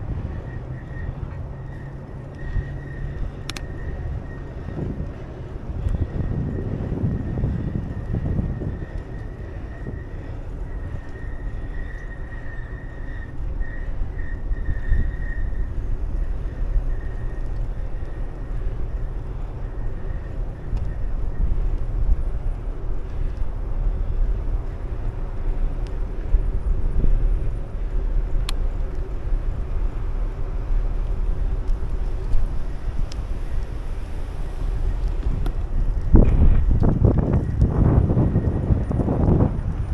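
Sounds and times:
wheels rumbling on asphalt: 0.0 - 39.9
wind rushing over microphone: 0.0 - 39.9
sharp tick: 2.2 - 4.0, 28.4 - 29.1.

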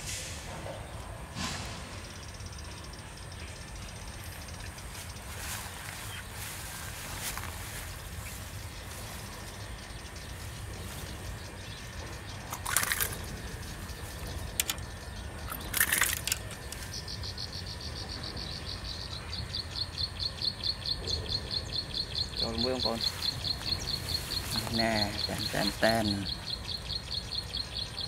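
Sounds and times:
bird chirping: 0.6 - 28.0
fish splashing: 12.5 - 13.2.

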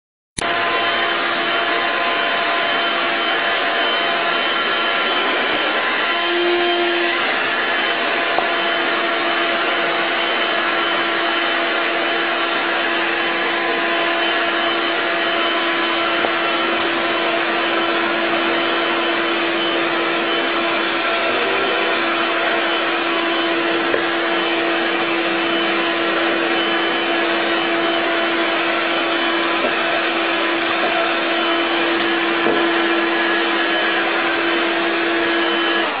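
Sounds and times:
vacuum cleaner running: 0.4 - 36.0.

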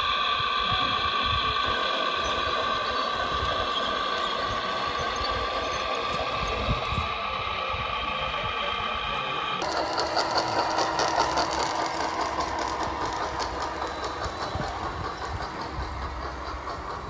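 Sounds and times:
motor and gearbox whine: 1.4 - 7.9, 9.5 - 17.0
tracks clattering: 9.6 - 17.0.

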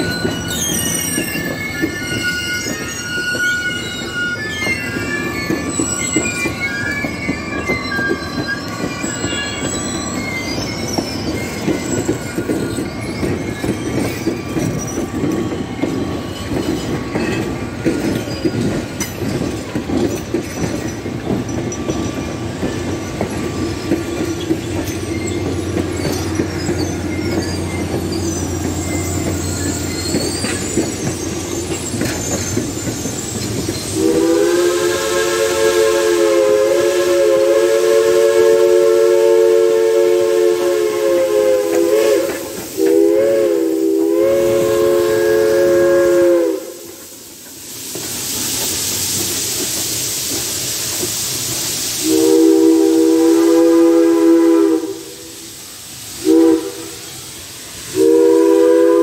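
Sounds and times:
high-pitched wheel squeal: 0.0 - 15.0
train wheels clattering over rail joints: 0.0 - 36.7, 37.4 - 54.3.

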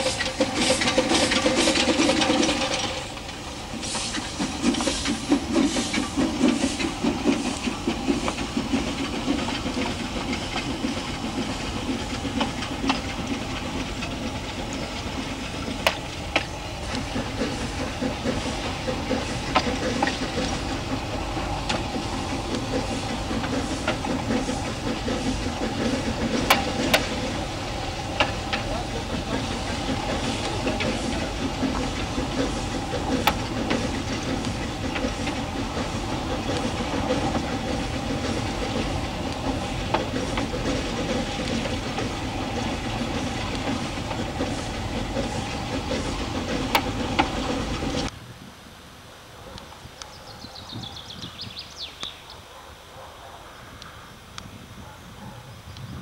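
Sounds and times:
train running rumble: 0.0 - 48.6, 49.2 - 56.0
sharp clacks: 21.4 - 27.4, 28.1 - 48.1.

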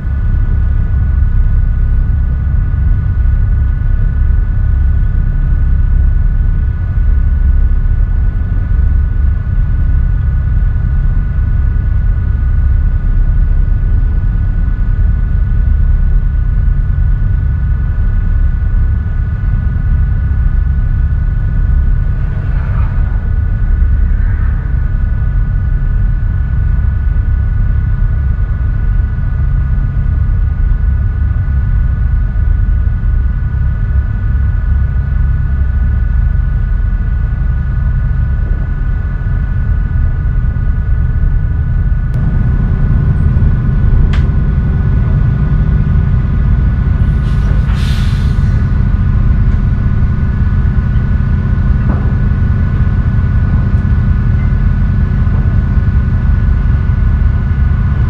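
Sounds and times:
boat diesel engines rumbling: 0.0 - 58.0
brief hiss: 47.0 - 48.7.

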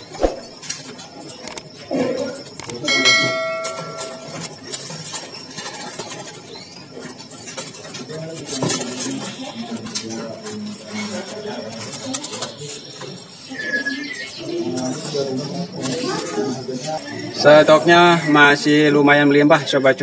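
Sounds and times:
metal clicks and clinks: 2.6 - 4.9
metallic ring: 2.8 - 4.6.

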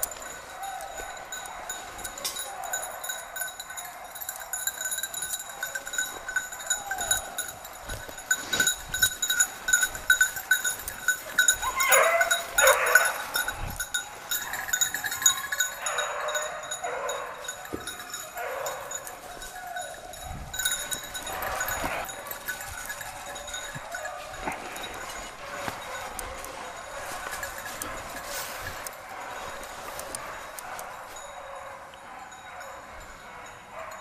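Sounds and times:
hounds baying: 0.0 - 34.0
small bell jingling: 0.0 - 34.0.

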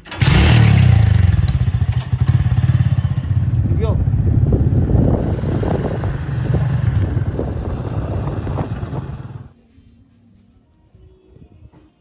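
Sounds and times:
small motorcycle engine running: 0.1 - 9.5.

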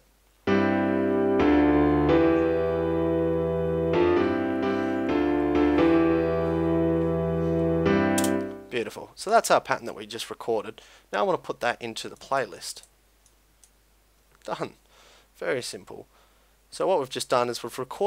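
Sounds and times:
piano chords over bass line: 0.5 - 8.8.

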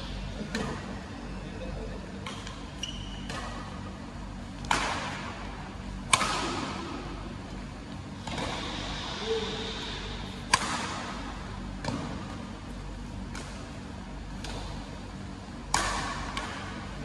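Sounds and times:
rackets hitting shuttlecock: 3.2 - 3.8, 4.6 - 7.0, 10.4 - 12.5, 13.2 - 14.9, 15.6 - 16.9.

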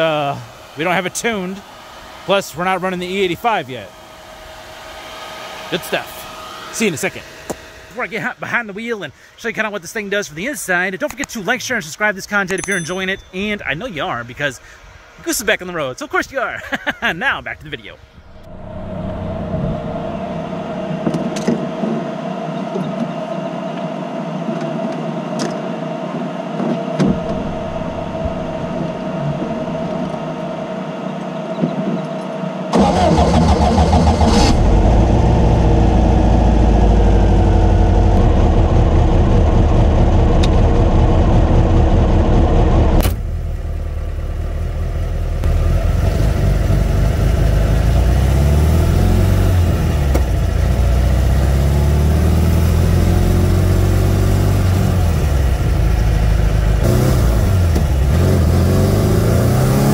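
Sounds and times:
car engine running on the road: 18.2 - 23.4, 26.6 - 30.8, 32.7 - 59.9.

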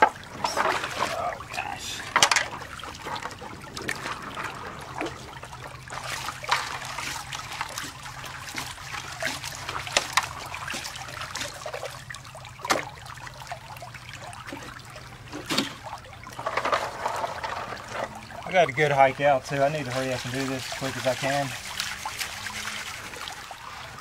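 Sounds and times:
water trickling and splashing: 0.0 - 24.0.

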